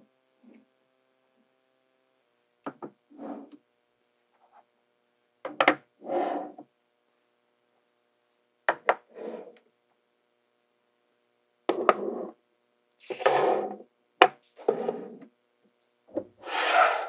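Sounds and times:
balls rattling and scraping: 13.0s - 13.8s, 14.4s - 15.2s, 16.2s - 17.0s.

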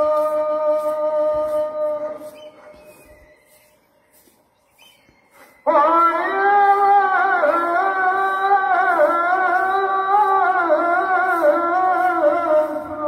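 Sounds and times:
man chanting call to prayer: 0.0s - 2.4s, 5.7s - 13.0s.

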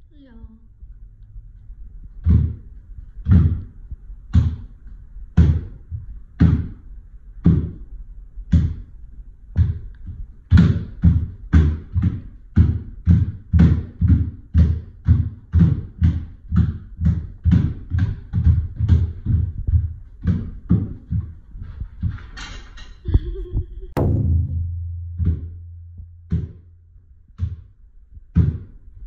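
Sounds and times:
bare feet stamping on wooden floor: 9.5s - 22.2s.

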